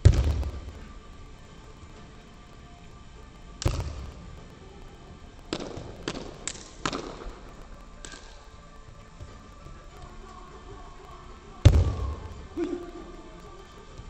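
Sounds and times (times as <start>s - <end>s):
echoing slaps and stamps: 0.0s - 0.8s, 3.6s - 4.2s, 5.5s - 8.4s.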